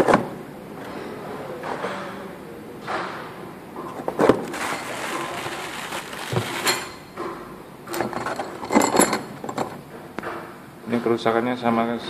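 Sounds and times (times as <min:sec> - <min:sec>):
metal engine parts clinking: 0:06.4 - 0:07.3, 0:07.9 - 0:10.0.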